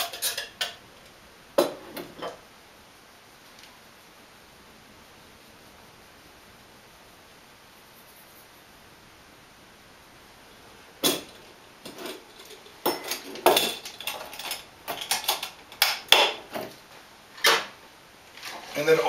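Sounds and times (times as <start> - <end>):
metal kitchenware clinking: 0.0 - 0.8, 11.0 - 16.4.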